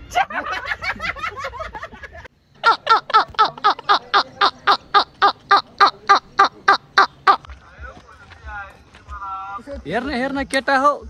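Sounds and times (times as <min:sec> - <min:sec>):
hearty human laughter: 0:00.0 - 0:04.8
short pitched calls: 0:02.6 - 0:07.4.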